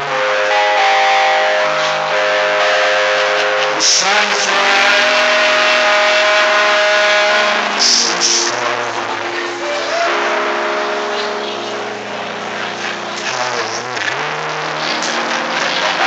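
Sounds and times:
man singing a slow ballad: 0:03.8 - 0:08.8.

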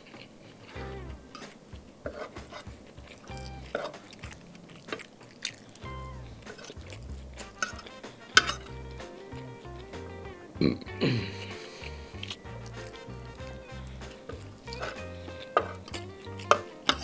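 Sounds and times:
background music: 0:00.8 - 0:04.6, 0:05.8 - 0:17.0
spaghetti slurping and chewing: 0:01.4 - 0:10.0, 0:10.6 - 0:17.0.

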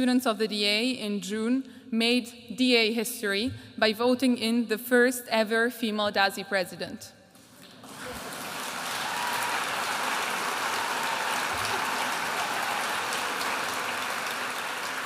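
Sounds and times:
audience applauding: 0:07.7 - 0:15.0.

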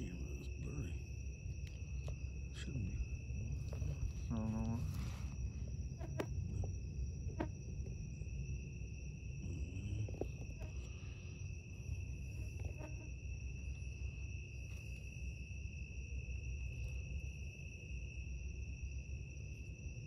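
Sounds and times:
crickets trilling: 0:00.0 - 0:20.0.

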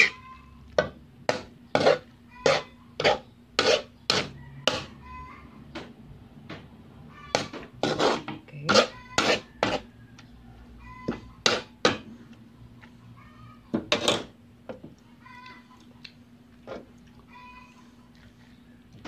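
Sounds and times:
spatula scraping a wok: 0:00.0 - 0:00.2, 0:01.3 - 0:05.0, 0:07.3 - 0:10.0, 0:11.4 - 0:12.1.

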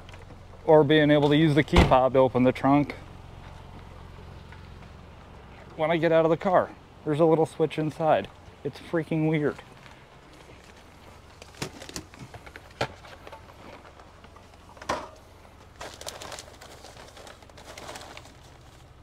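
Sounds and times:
low steady hum: 0:00.0 - 0:19.0
rustling: 0:09.5 - 0:19.0.

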